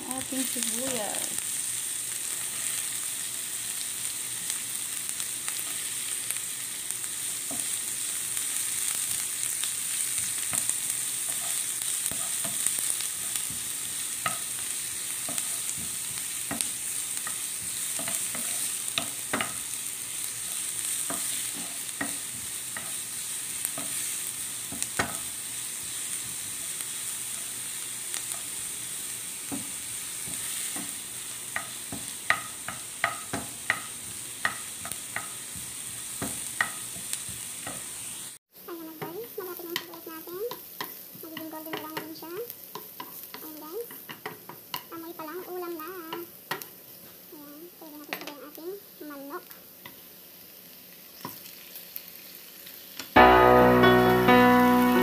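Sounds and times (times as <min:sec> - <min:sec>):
onion sizzling in oil: 0:00.0 - 0:55.0
wooden spoon scraping a pan: 0:10.2 - 0:38.3.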